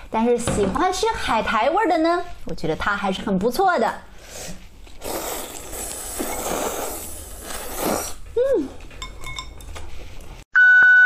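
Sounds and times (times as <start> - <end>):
noodles being slurped: 4.9 - 8.2
person humming: 8.4 - 8.8.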